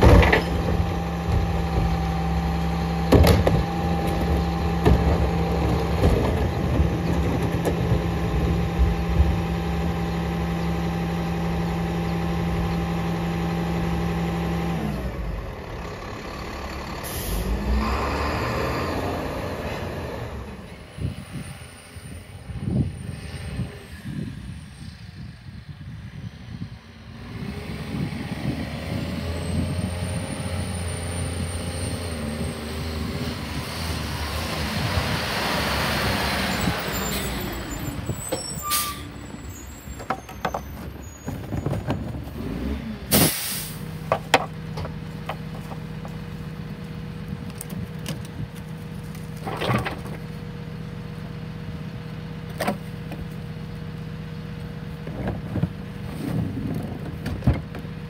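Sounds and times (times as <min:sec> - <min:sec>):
trash carts knocking and banging: 0:00.0 - 0:10.3, 0:36.6 - 0:46.3, 0:49.3 - 0:50.3, 0:55.0 - 0:58.0
garbage truck engine: 0:00.0 - 0:58.0
air brakes hissing: 0:17.0 - 0:17.6, 0:36.9 - 0:40.3, 0:43.1 - 0:43.9.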